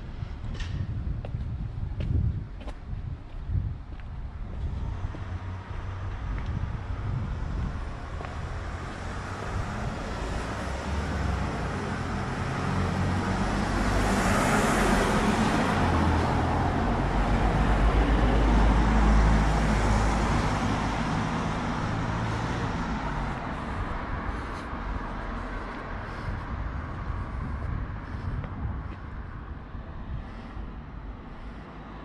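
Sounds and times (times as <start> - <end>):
motor vehicle passing: 4.6 - 32.0.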